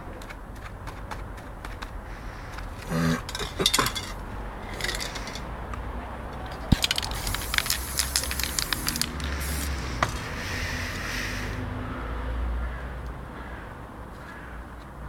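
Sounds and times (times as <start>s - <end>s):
crinkling and clicking handling noises: 0.0s - 10.2s
spray-paint can hissing: 6.8s - 11.5s.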